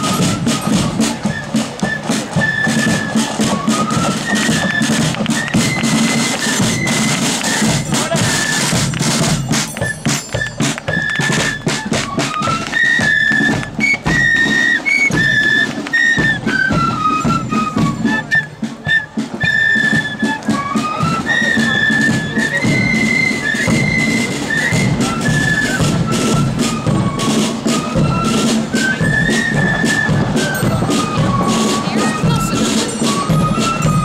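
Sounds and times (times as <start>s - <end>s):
flute melody: 0.0s - 34.0s
side drum beats: 0.0s - 34.0s.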